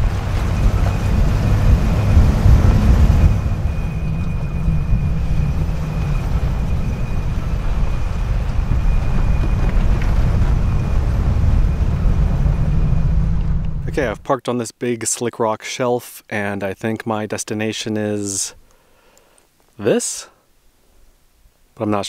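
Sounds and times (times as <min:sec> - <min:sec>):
engine and tyres rumbling: 0:00.0 - 0:14.2.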